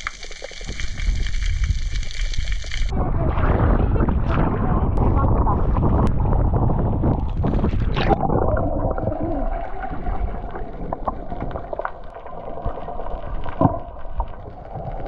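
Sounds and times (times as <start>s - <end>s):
underwater clicks: 0.0s - 2.9s
muffled underwater sound: 2.4s - 15.0s.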